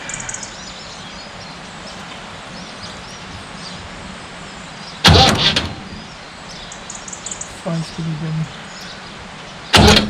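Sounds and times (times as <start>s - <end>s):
faint bird chirps: 0.0s - 10.0s
outdoor background noise: 0.0s - 10.0s.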